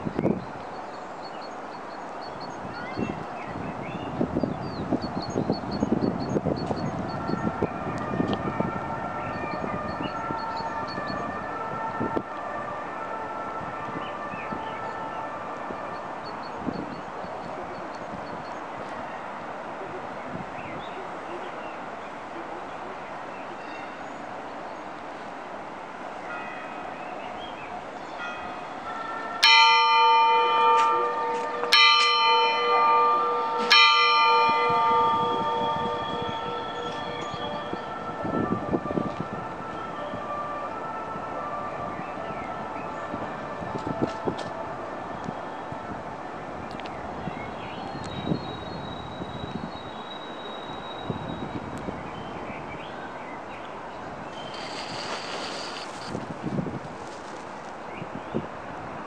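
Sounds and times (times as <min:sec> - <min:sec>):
wind buffeting microphone: 0:00.0 - 0:00.8, 0:01.8 - 0:22.0, 0:27.8 - 0:59.0
faint city hum: 0:00.0 - 0:59.0
large bell ringing: 0:28.2 - 0:38.4
bird chirps: 0:54.3 - 0:56.2.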